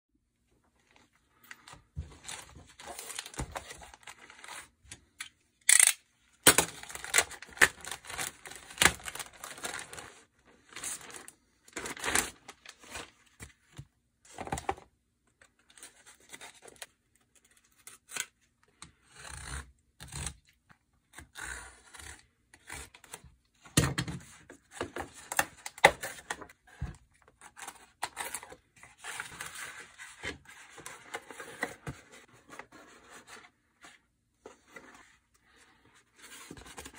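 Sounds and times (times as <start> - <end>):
knife slitting packing tape: 5.7 - 6.0
plastic mailer rustling and tearing: 5.7 - 13.4.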